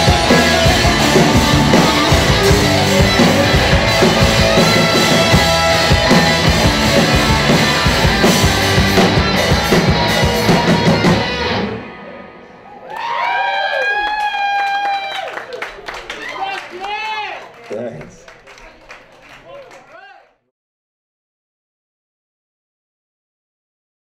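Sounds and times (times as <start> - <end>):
drum kit: 0.0 - 11.9
electric guitars: 0.0 - 12.6.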